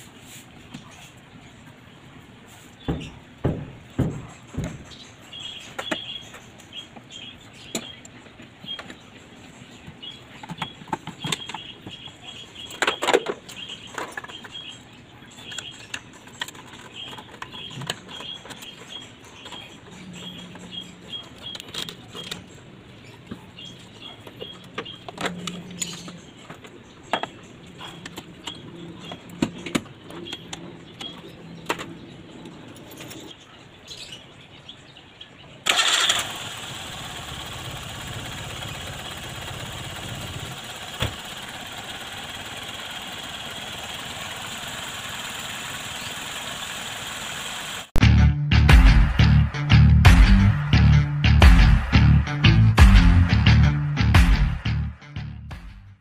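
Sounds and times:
plastic parts clicking and snapping: 0:15.4 - 0:19.9, 0:21.3 - 0:22.5.

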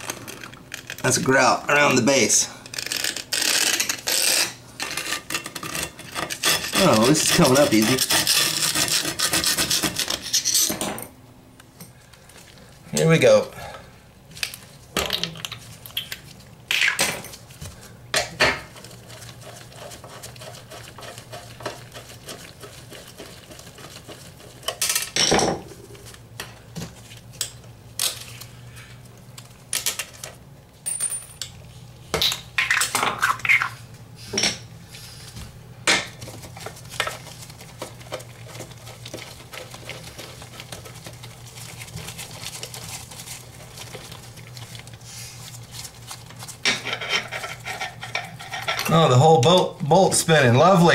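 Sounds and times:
metal tools scraping porcelain: 0:02.8 - 0:10.8, 0:46.7 - 0:49.0.

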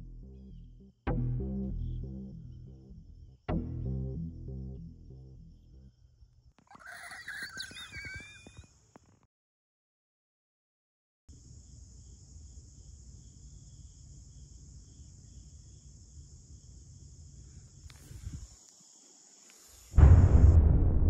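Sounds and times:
high-pitched insect chirring: 0:06.6 - 0:08.7
loud deep rumble: 0:20.0 - 0:21.0
low rumble: 0:20.0 - 0:21.0.

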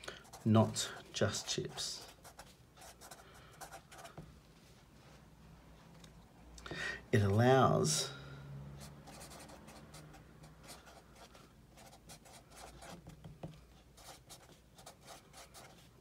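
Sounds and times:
marker writing on paper: 0:01.3 - 0:04.2, 0:09.1 - 0:15.9.

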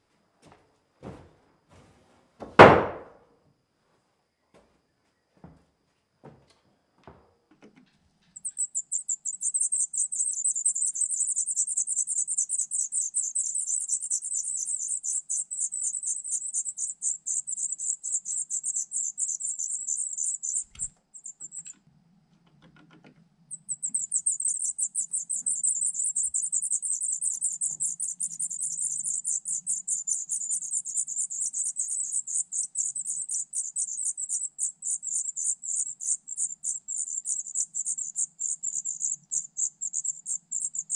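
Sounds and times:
thump: 0:01.0 - 0:03.2
nestlings begging calls: 0:08.4 - 0:21.7, 0:23.5 - 0:40.9.

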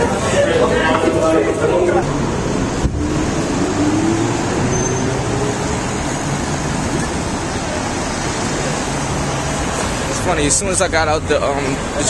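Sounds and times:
cars driving past: 0:00.0 - 0:12.0
engine note rising: 0:00.5 - 0:10.1.

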